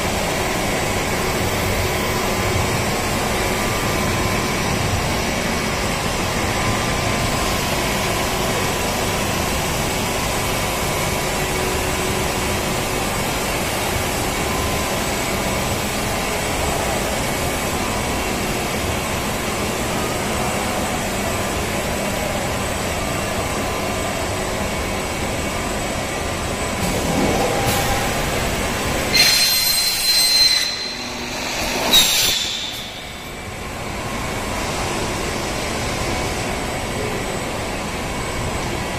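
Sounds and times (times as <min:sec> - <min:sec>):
high squeaks: 0:29.2 - 0:33.4.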